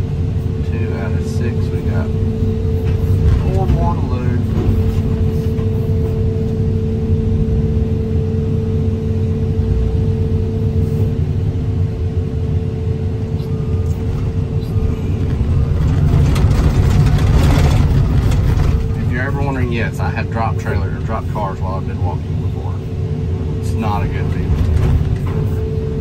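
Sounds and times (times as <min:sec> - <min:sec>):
excavator diesel engine: 0:00.0 - 0:26.0
steady whine: 0:00.0 - 0:26.0
metal rattling: 0:15.1 - 0:19.1.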